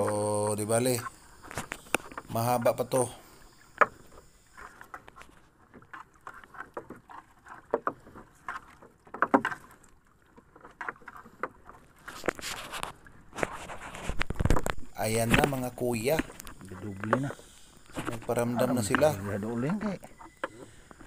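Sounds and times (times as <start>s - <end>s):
water sloshing against hull: 0.0s - 21.0s
net scraping on wooden rail: 12.0s - 20.9s.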